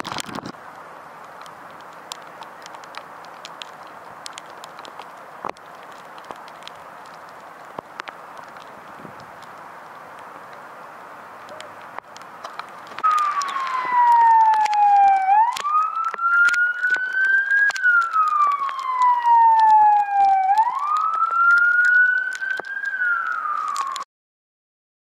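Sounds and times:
steady hiss: 0.5 - 14.4
emergency siren wailing: 12.5 - 24.1.

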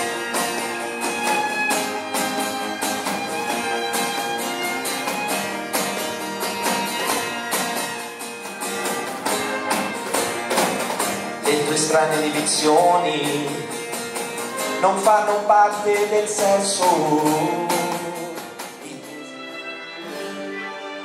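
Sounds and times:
bowed violins and cello: 0.0 - 10.5, 18.9 - 21.0
cajon beat: 0.0 - 19.2
guitar: 0.0 - 21.0.

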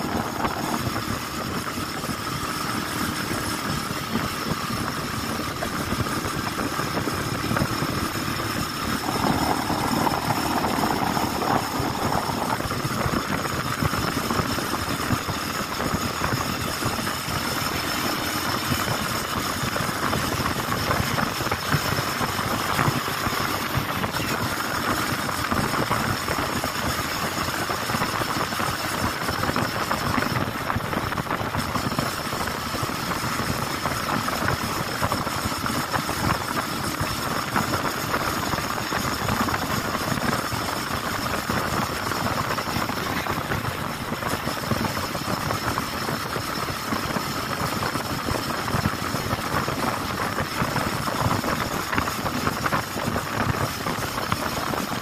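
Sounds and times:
wind rushing: 0.0 - 17.4
motorcycle engine running: 0.0 - 55.0
road noise: 0.0 - 55.0.

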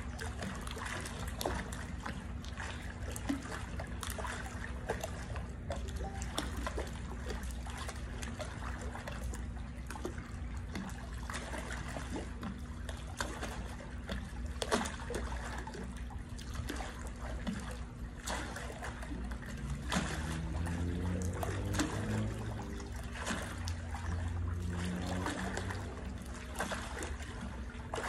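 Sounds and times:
low hum: 0.0 - 12.1, 18.8 - 28.0
pool water splashing: 0.0 - 28.0.

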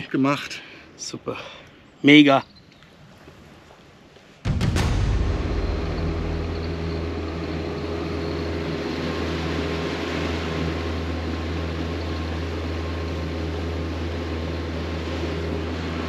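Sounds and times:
boat engine humming: 5.0 - 16.0.

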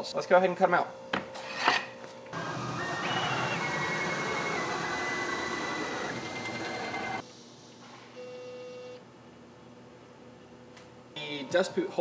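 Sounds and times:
router motor running: 2.4 - 7.2
stepper motors whining: 2.4 - 7.2.

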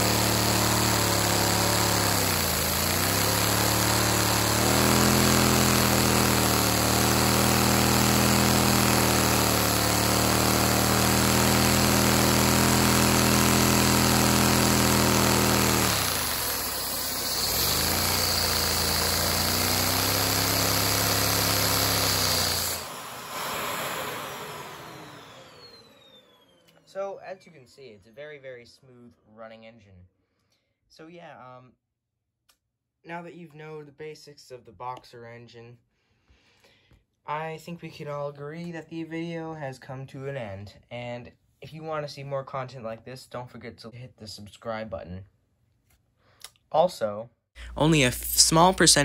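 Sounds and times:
small engine mechanical hum: 0.0 - 27.0
vacuum cleaner rushing: 0.0 - 27.0, 47.8 - 49.0.

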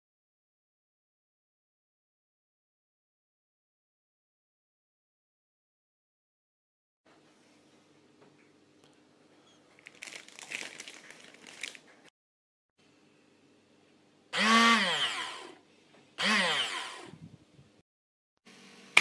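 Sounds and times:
blender motor whirring: 14.3 - 15.6, 16.2 - 17.3.

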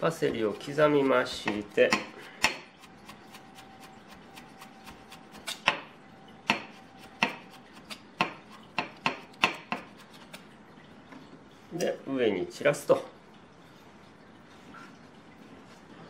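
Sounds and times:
knife chopping on wooden board: 0.3 - 5.9, 6.5 - 10.4.

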